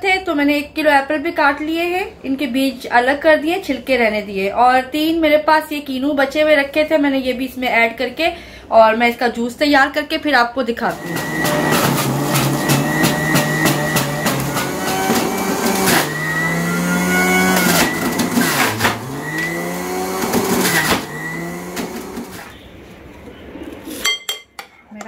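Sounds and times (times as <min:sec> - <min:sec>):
electric juicer motor running: 0:10.9 - 0:22.5.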